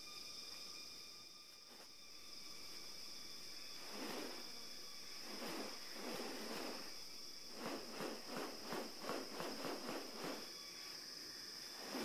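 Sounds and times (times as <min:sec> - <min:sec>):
high insect drone: 0:00.0 - 0:12.0
swishing wing strokes: 0:03.4 - 0:10.9, 0:11.6 - 0:12.0.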